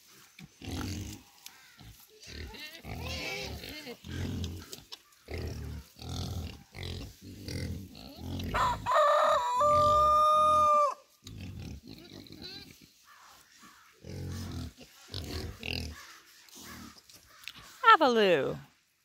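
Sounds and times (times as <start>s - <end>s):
pigs grunting: 0.6s - 8.9s, 11.3s - 13.0s, 13.7s - 17.0s
rooster crowing: 8.5s - 11.0s.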